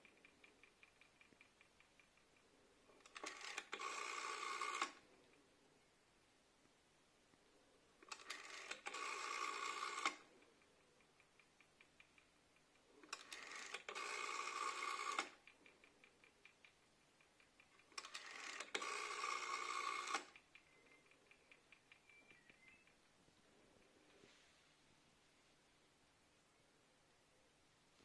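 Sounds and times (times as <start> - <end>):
rotary telephone dial turning: 0.0 - 5.2, 8.0 - 23.0
faint rapid ticking: 0.0 - 5.9, 6.6 - 24.4.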